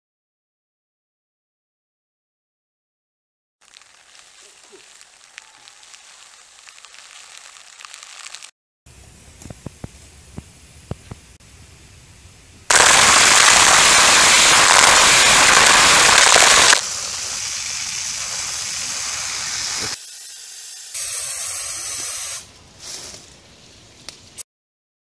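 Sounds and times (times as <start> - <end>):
water spray hissing on plastic: 3.6 - 8.5, 12.7 - 22.5.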